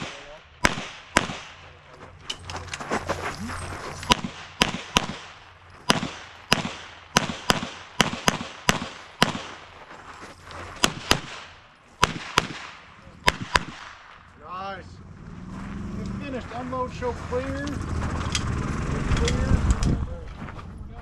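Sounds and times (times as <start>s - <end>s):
pistol shots: 0.0s - 1.7s, 4.1s - 9.7s, 10.8s - 14.2s.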